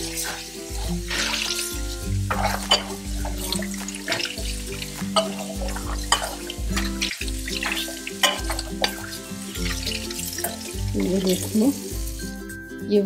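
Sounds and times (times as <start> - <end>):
tap water running over bowl: 0.0 - 12.4
background music: 0.0 - 13.0
metal bowl clinks: 5.1 - 7.0.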